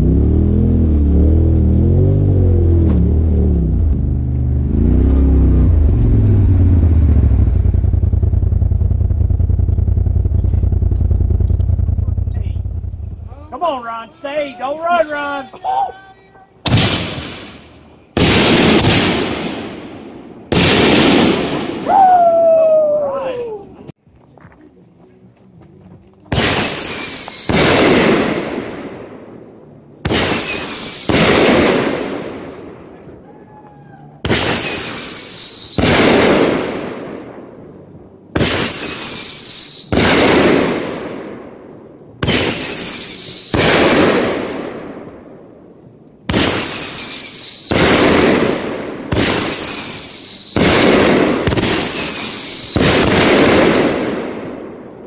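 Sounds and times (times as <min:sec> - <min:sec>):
firework burst bang: 0:16.7 - 0:17.6, 0:20.5 - 0:22.0, 0:46.3 - 0:54.4
firework whistling bang: 0:26.4 - 0:28.6, 0:30.0 - 0:32.0, 0:34.2 - 0:36.5, 0:38.4 - 0:40.8, 0:42.2 - 0:44.9, 0:46.3 - 0:48.5, 0:49.1 - 0:53.5.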